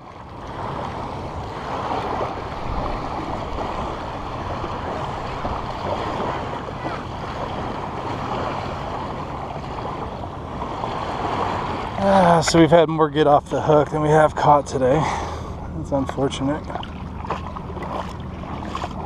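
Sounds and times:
wind on microphone: 0.0 - 12.0
small waves washing onto shore: 0.0 - 19.0.

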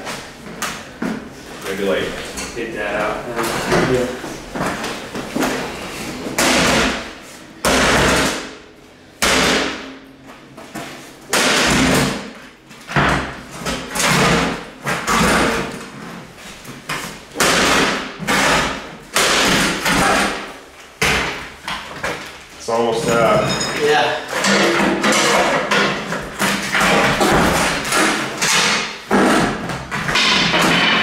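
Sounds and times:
sledgehammer striking steel safe: 24.4 - 31.0.

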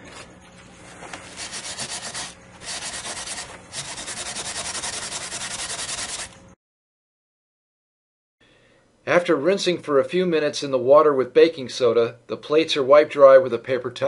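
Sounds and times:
metal sponge scrubbing metal plate: 1.3 - 6.3.

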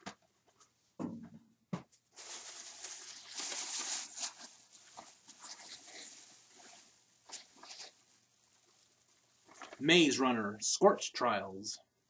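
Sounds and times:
plastic bag rustling: 2.1 - 9.8.

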